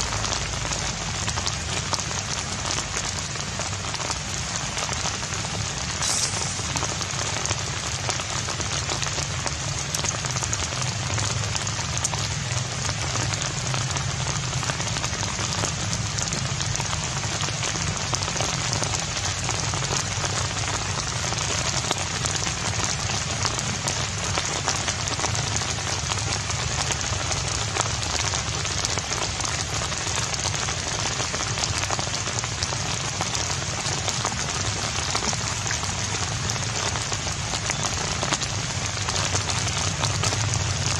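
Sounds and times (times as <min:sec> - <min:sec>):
steady rain falling: 0:00.0 - 0:40.9.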